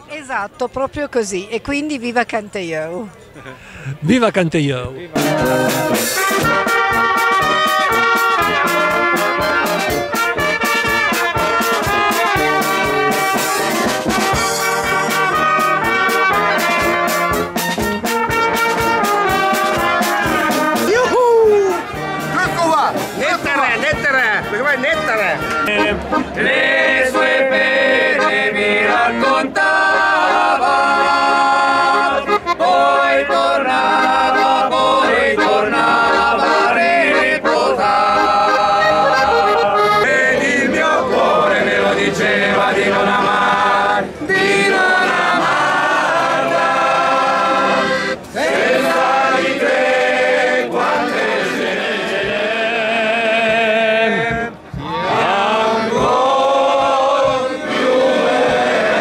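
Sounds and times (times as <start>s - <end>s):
piano accordion: 5.2s - 20.9s, 21.8s - 53.2s
men singing together: 25.8s - 59.0s.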